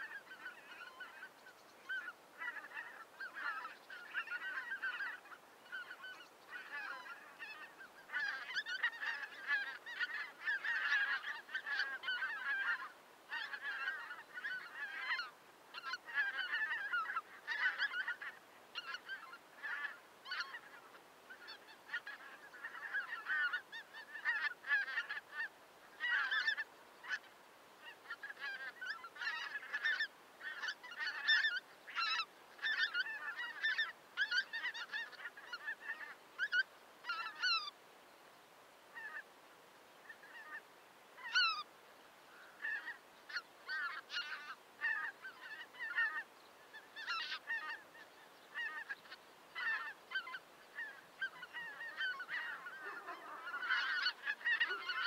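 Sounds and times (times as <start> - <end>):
geese honking: 0.0 - 37.8, 41.2 - 41.7, 42.4 - 55.0.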